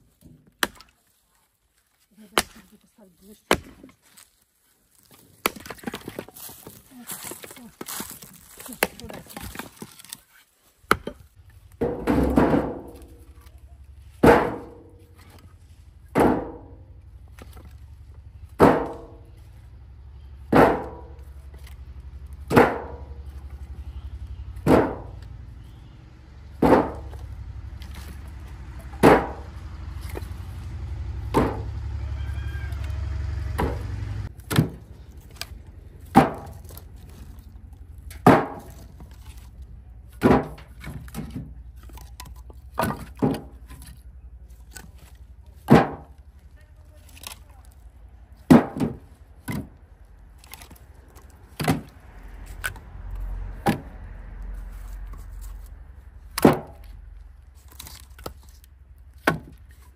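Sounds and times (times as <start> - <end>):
axe chopping wood: 0.2 - 1.0, 2.3 - 2.7, 3.4 - 4.0, 5.4 - 10.2, 10.8 - 11.2, 11.8 - 13.3, 14.2 - 15.4, 16.1 - 16.8, 18.6 - 19.1, 20.5 - 21.8, 22.4 - 23.2, 24.6 - 25.3, 26.6 - 28.2, 28.9 - 29.5, 31.3 - 31.7, 33.6 - 37.3, 38.1 - 39.4, 40.1 - 43.9, 44.7 - 46.2, 48.4 - 49.8, 50.5 - 52.0, 53.6 - 53.9, 56.3 - 56.9, 59.2 - 59.9
low steady hum: 11.0 - 59.9.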